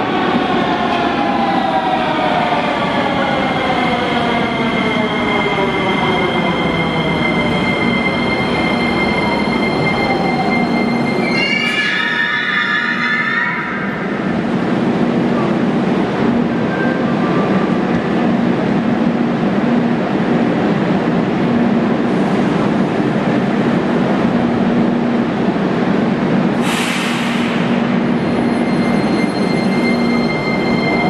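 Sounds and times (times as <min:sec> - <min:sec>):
metro train humming: 0:00.0 - 0:31.0
hiss of air: 0:26.6 - 0:27.6.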